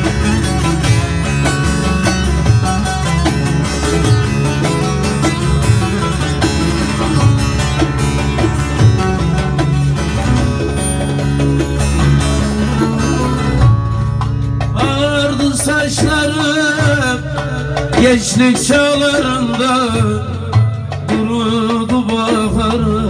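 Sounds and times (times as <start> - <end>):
amplified plucked lute: 0.0 - 23.0
man singing: 14.7 - 23.0.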